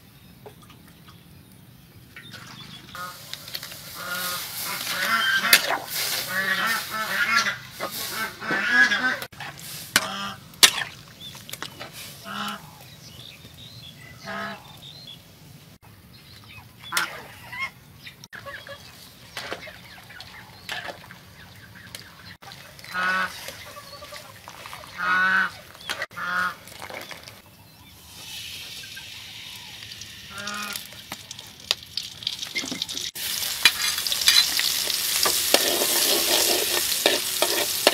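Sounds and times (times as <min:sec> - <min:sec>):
fowl honking: 0:03.0 - 0:09.3, 0:25.0 - 0:26.6, 0:30.3 - 0:30.9
metal spatula scraping a wok: 0:03.2 - 0:10.1, 0:33.3 - 0:37.9.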